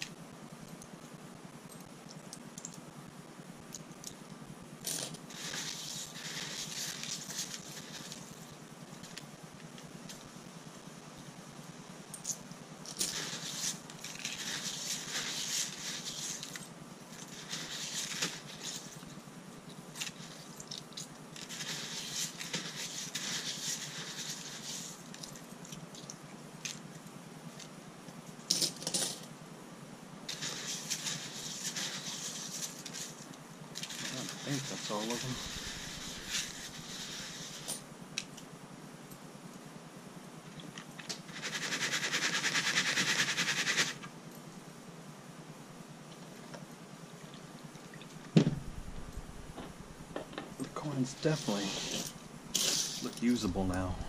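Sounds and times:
metal pins and coins clinking: 28.5s - 29.3s.

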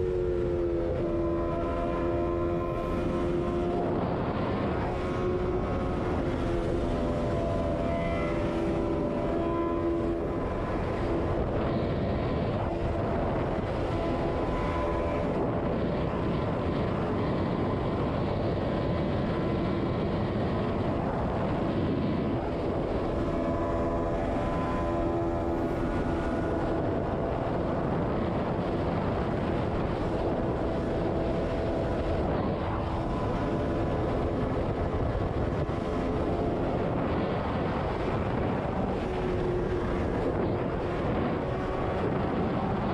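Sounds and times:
wind rush over microphone: 0.0s - 42.9s.

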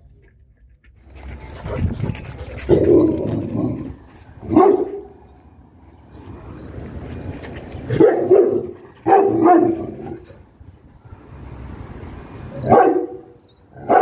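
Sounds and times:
dog barking: 4.4s - 5.2s, 7.9s - 10.2s, 12.5s - 14.0s.

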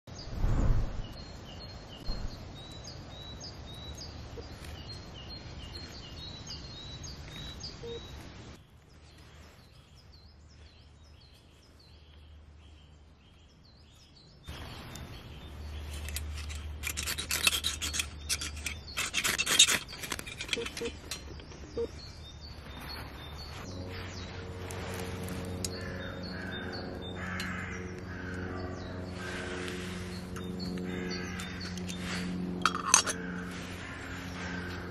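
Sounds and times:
songbirds chirping: 0.1s - 34.9s
ferro rod scraping: 15.8s - 21.3s.

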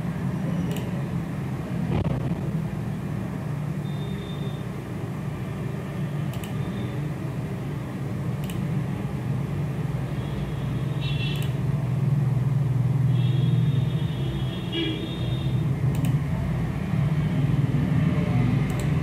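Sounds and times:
computer mouse clicks: 0.6s - 1.0s, 6.3s - 6.6s, 8.4s - 8.7s, 11.3s - 11.6s, 15.9s - 16.2s, 18.6s - 19.0s.

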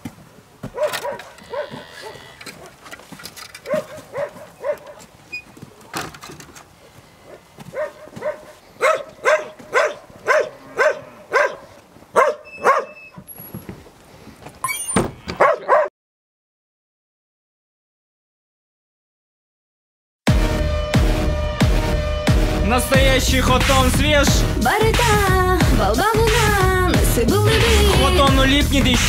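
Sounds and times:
dog barking: 0.7s - 2.2s, 3.6s - 5.1s, 7.3s - 13.1s, 15.4s - 15.9s.

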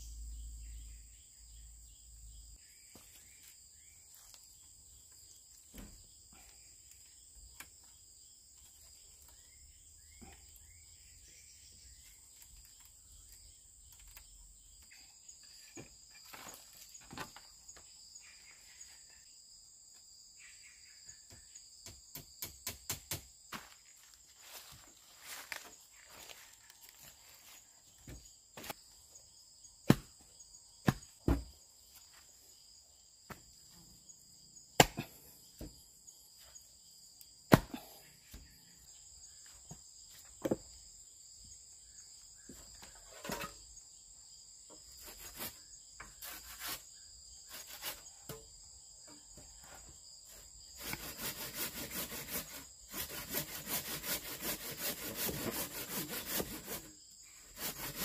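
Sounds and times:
saw cutting through wood: 50.8s - 58.0s.

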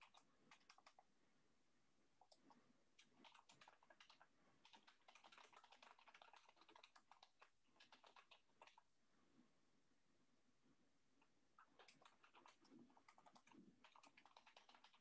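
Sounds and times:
faint keyboard typing: 0.0s - 1.1s, 2.2s - 8.9s, 11.2s - 15.0s.

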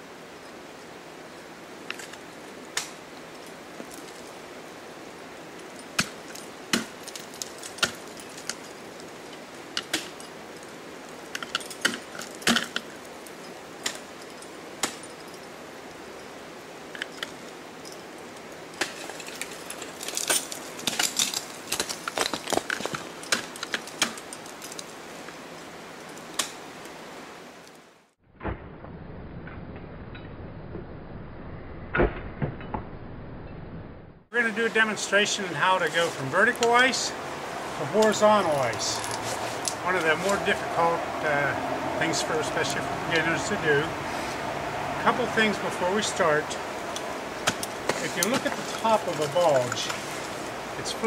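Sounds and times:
ice axe striking ice: 5.7s - 10.4s, 11.2s - 13.0s, 13.8s - 15.4s, 18.7s - 24.8s, 47.4s - 51.0s
climbing hardware clinking: 16.9s - 25.0s, 45.0s - 51.0s.

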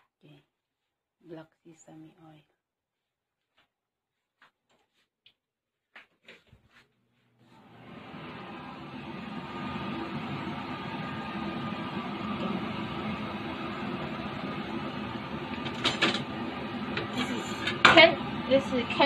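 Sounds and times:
appliance running noise: 7.4s - 19.0s.

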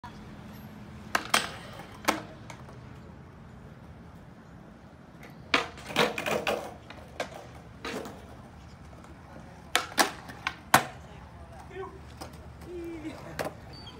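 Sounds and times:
skateboard wheels rolling on concrete: 0.0s - 13.9s
skateboard clack on concrete: 1.0s - 2.8s, 5.2s - 13.7s.

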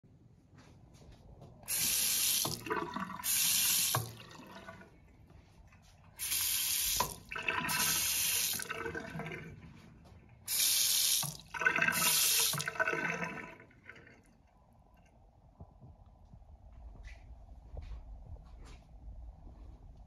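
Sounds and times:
faucet hissing spurt: 1.7s - 4.2s, 6.2s - 8.7s, 10.5s - 12.8s
water running into sink: 1.7s - 4.9s, 6.2s - 9.6s, 10.5s - 14.1s.

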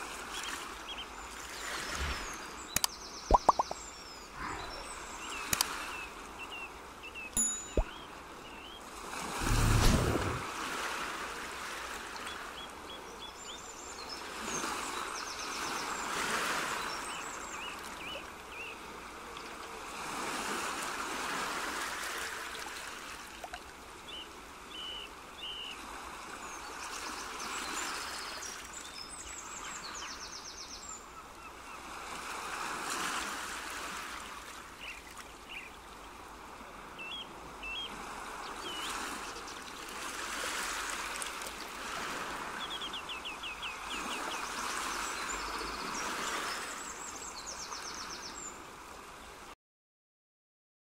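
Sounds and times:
flowing water: 0.0s - 12.9s, 15.6s - 24.6s, 32.1s - 47.7s
small birds chirping: 0.4s - 8.8s.

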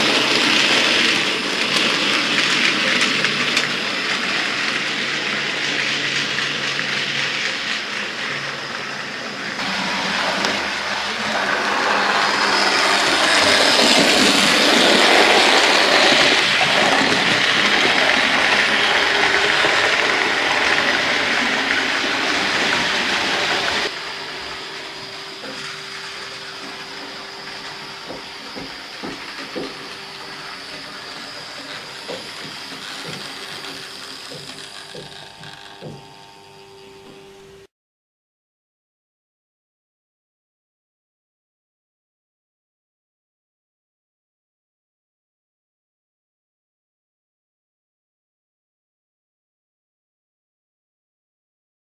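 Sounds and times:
model train motor hum: 0.0s - 37.7s.

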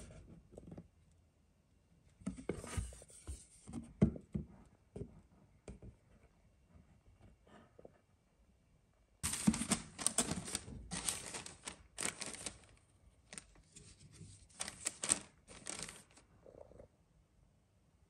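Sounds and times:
paper rustling and crinkling: 9.2s - 16.3s.

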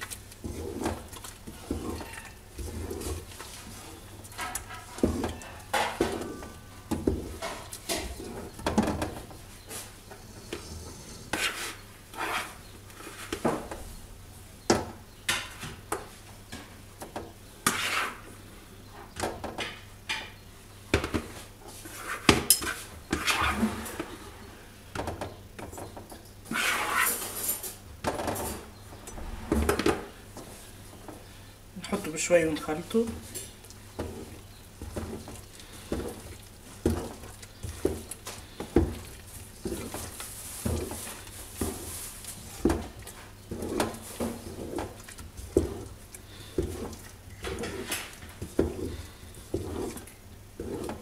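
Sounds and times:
wooden spoon scraping a metal pot: 0.0s - 13.8s, 17.6s - 18.4s, 21.2s - 24.6s, 25.3s - 27.8s, 28.4s - 51.0s.

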